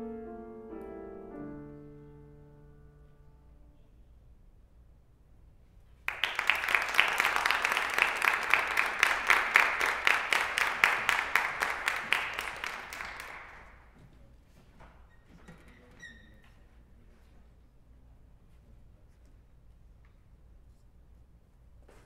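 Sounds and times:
audience applauding: 6.1 - 13.9.

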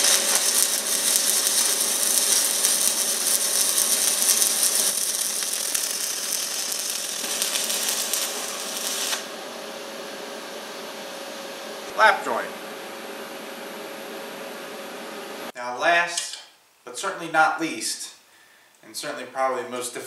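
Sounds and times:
welding arc crackling: 0.0 - 12.2.

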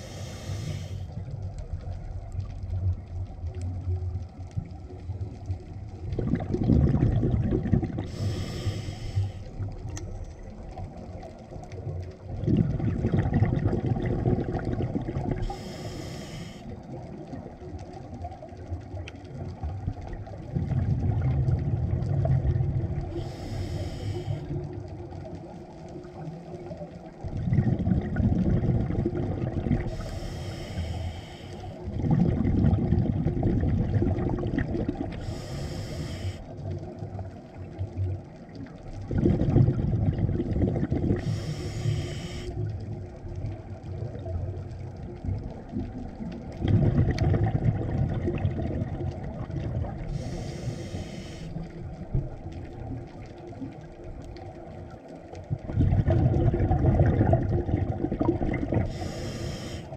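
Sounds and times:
regulator inhalation hiss: 0.0 - 1.1, 8.1 - 9.6, 15.4 - 16.8, 23.1 - 24.6, 29.9 - 31.8, 35.2 - 36.6, 41.2 - 42.6, 50.1 - 51.7, 58.9 - 59.9
exhaled air bubbling underwater: 0.0 - 59.9.

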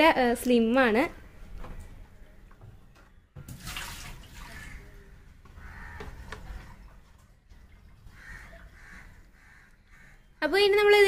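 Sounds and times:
water splashing in basin: 3.4 - 5.0.

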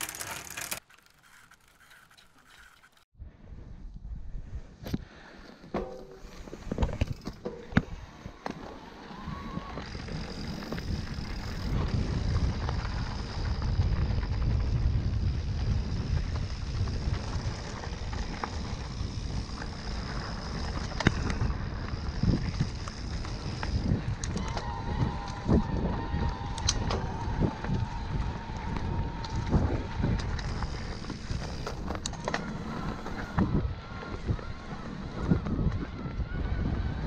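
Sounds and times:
wind on microphone: 9.0 - 37.0
tyres rumbling on rough ground: 9.2 - 37.0.

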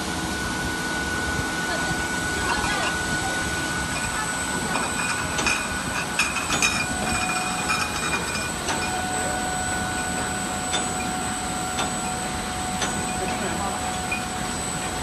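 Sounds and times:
steady machine whine: 0.0 - 15.0
glass bottles clinking: 4.0 - 9.0.

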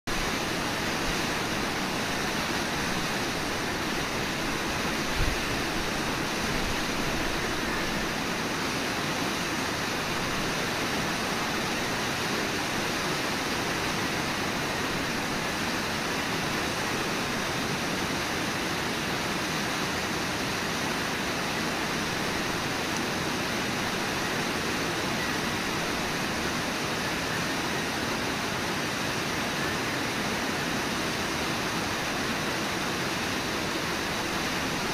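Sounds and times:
river rapids and waterfall roar: 0.1 - 34.9.

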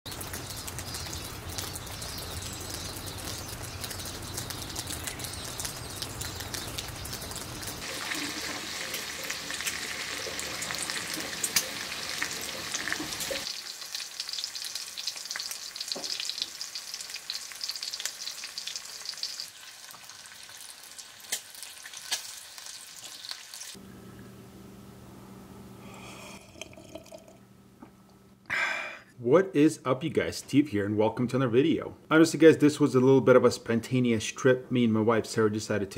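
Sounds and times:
bacon sizzling with pops: 0.1 - 23.8.

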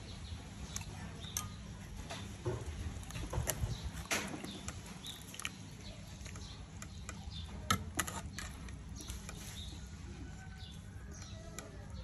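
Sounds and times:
metal ladle scraping a pot: 6.3 - 10.7.

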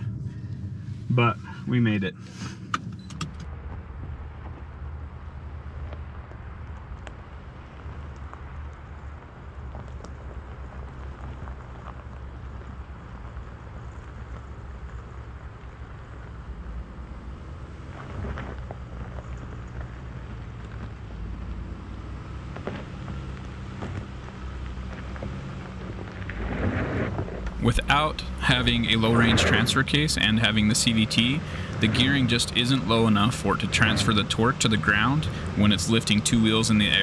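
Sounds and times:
gravel crackling under tyres: 0.0 - 37.0
low wind rumble: 0.0 - 37.0
distant engine revving high: 27.5 - 37.0.

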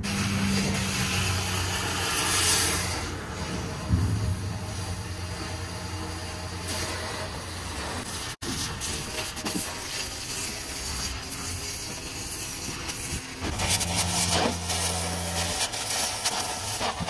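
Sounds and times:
cutting torch hissing: 0.0 - 17.0
low engine hum: 2.9 - 6.7.

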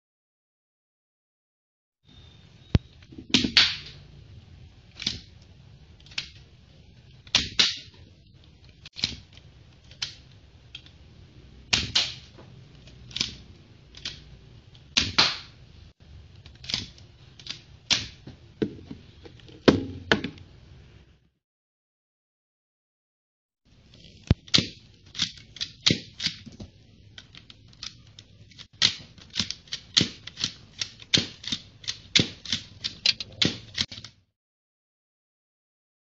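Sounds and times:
toy pistol plastic clicks and snaps: 4.9 - 6.4, 7.2 - 11.0, 11.7 - 15.5, 16.4 - 18.2, 24.3 - 26.5, 27.2 - 34.2.

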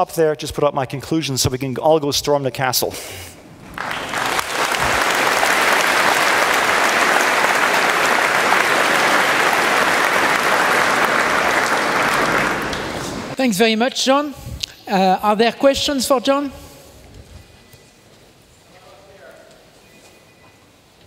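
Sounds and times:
audience applauding: 3.5 - 13.4.

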